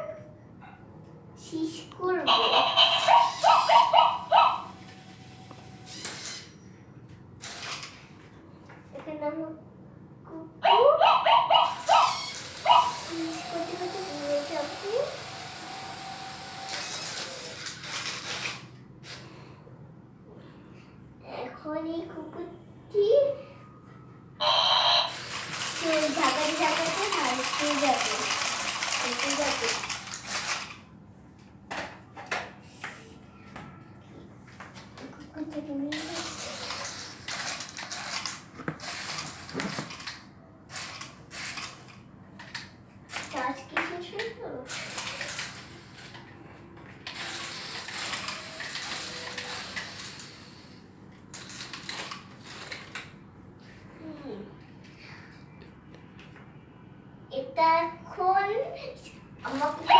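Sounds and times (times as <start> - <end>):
toy robot motors whirring: 2.3 - 6.6, 7.4 - 8.1, 11.3 - 19.3, 24.4 - 30.8, 35.5 - 46.3, 47.0 - 53.1, 59.4 - 59.9.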